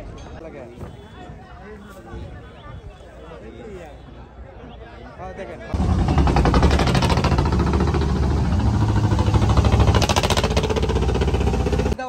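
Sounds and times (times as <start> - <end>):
boat engine running: 5.8 - 12.0.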